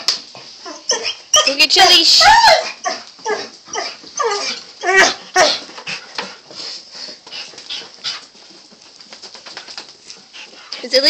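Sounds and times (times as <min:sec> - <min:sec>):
dog whining and yipping: 0:00.6 - 0:05.7.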